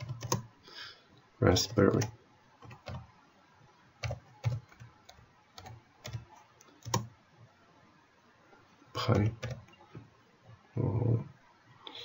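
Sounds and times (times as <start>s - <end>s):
keyboard keystrokes: 0.0s - 0.5s, 4.0s - 7.1s.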